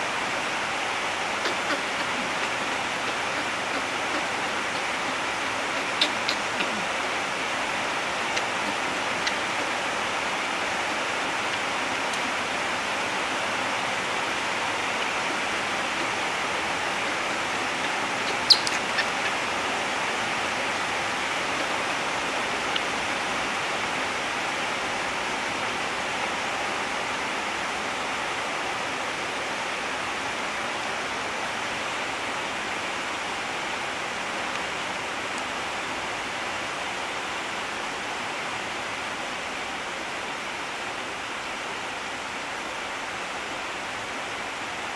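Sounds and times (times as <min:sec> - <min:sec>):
steady rushing noise: 0:00.0 - 0:27.0.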